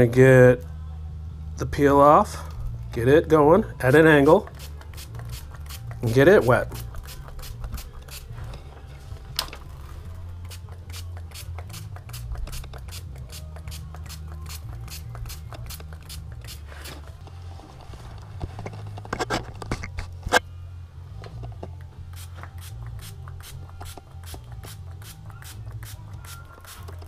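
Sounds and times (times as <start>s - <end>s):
spray bottle squirting: 4.2s - 8.4s, 10.4s - 17.1s, 22.1s - 27.0s.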